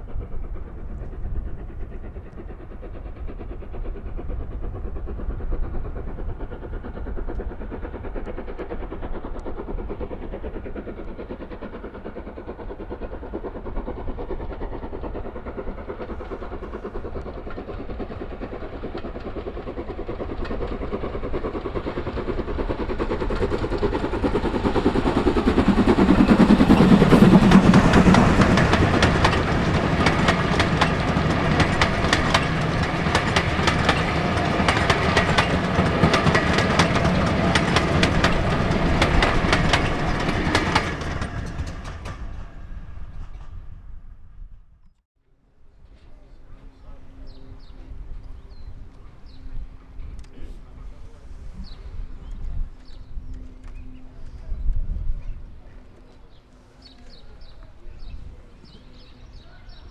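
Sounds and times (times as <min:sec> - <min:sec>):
train wheels clickety-clack: 0:00.0 - 0:44.0
steam locomotive passing: 0:00.0 - 0:44.7, 0:45.4 - 0:59.9.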